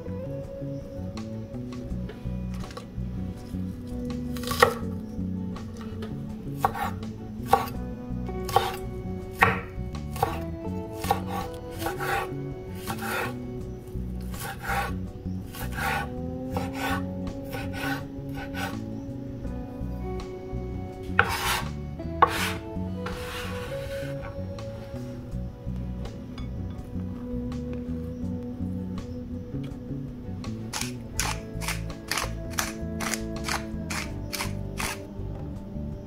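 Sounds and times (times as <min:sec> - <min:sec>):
knife chopping on wooden board: 0:04.4 - 0:04.8, 0:06.6 - 0:07.8, 0:08.5 - 0:08.8, 0:09.4 - 0:10.4, 0:11.0 - 0:13.3, 0:14.3 - 0:14.9, 0:15.5 - 0:18.8, 0:21.2 - 0:23.4.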